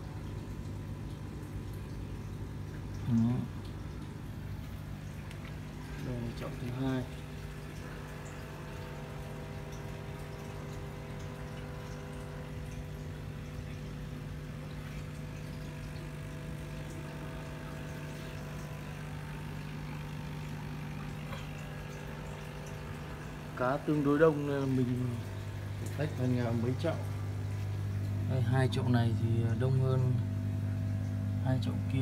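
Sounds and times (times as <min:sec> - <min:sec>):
air pump humming: 0:00.0 - 0:32.0
faint bubbling in water: 0:00.0 - 0:32.0.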